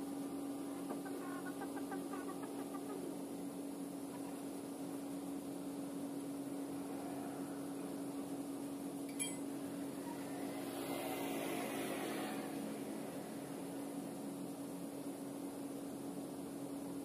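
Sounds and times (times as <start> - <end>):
steady mechanical hum: 0.0 - 17.0
motor scooter passing: 9.6 - 14.3.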